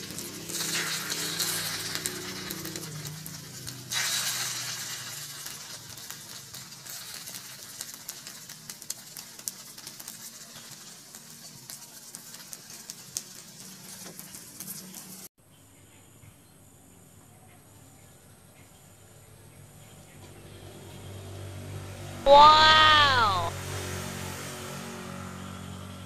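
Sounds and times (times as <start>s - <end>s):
egg sizzling in hot oil: 0.0s - 15.3s.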